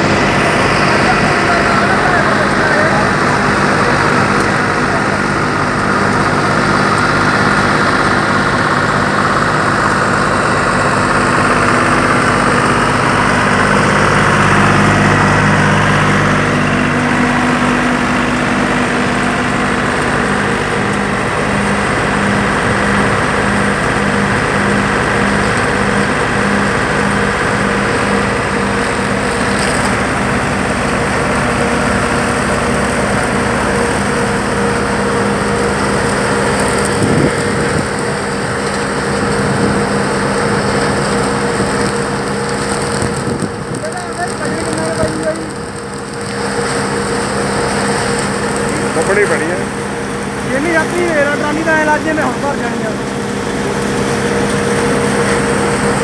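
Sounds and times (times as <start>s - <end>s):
blower fan hum: 0.0s - 56.0s
tractor diesel engine droning: 0.0s - 56.0s.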